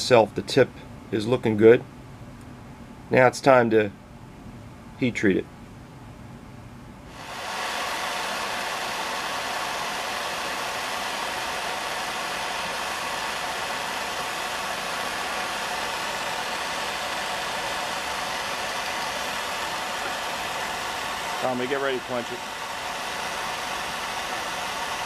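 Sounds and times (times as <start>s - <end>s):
torch flame hissing: 7.1s - 25.0s.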